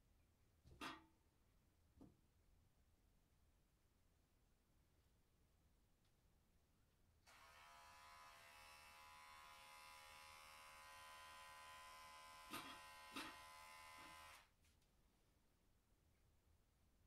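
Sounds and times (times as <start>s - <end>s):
electric hair clipper buzzing: 7.3s - 14.5s.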